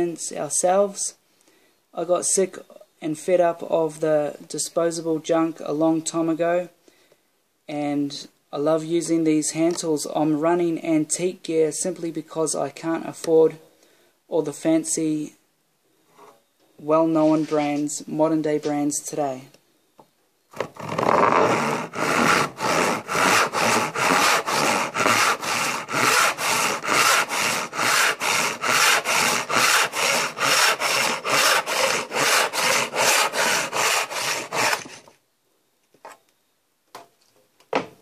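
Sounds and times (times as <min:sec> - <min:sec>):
hand saw cutting wood: 0:20.6 - 0:35.1.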